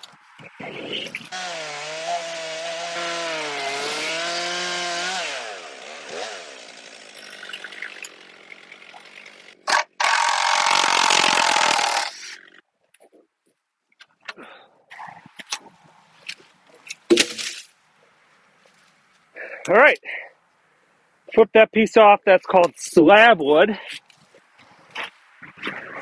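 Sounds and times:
chainsaw ripping through log: 1.3 - 12.6.

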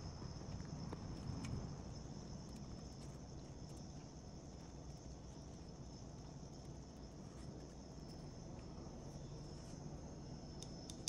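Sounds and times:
faint high-pitched whine: 0.0 - 11.0
low hum: 0.0 - 11.0
small clicks from handling parts: 10.6 - 11.0.

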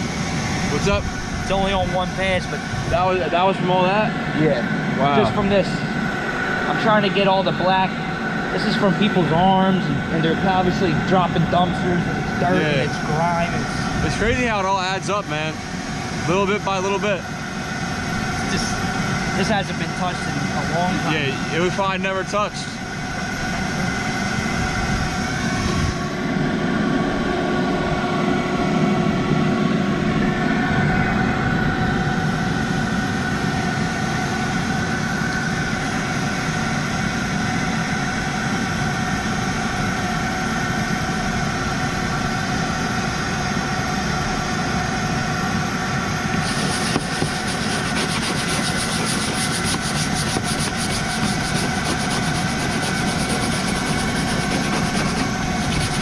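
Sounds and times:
machine running rumble: 0.0 - 56.0.

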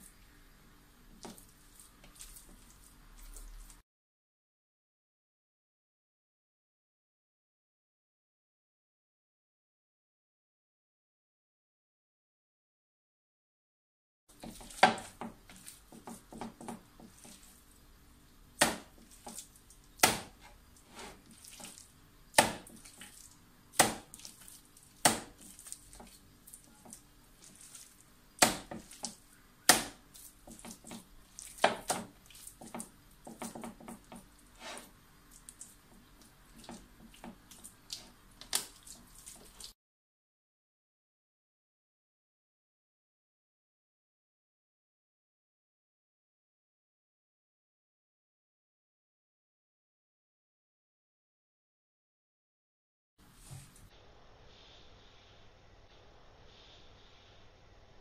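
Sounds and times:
wet meat squelching: 1.2 - 3.8, 14.4 - 16.3, 21.2 - 32.8, 34.4 - 39.8
sharp wet slaps: 18.6 - 20.4, 22.4 - 23.2, 23.8 - 25.8, 27.5 - 32.5, 37.5 - 39.7.

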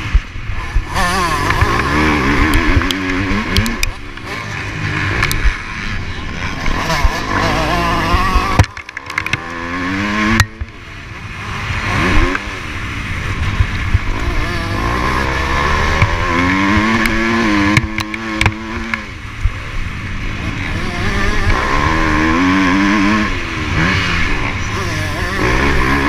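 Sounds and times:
motocross bike engine revving: 0.0 - 26.0
wind rumble on microphone: 11.8 - 26.0
knocks from the bike: 17.7 - 19.0.

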